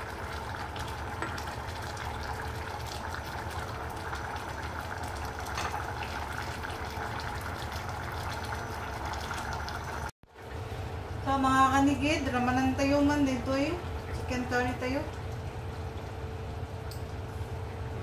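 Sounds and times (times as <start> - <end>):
curry bubbling in saucepan: 0.0 - 18.0.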